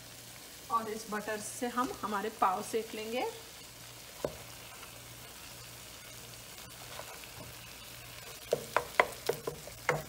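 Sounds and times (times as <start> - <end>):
butter sizzling in a pan: 0.0 - 10.0
wooden spoon knocking a pan: 8.4 - 10.0.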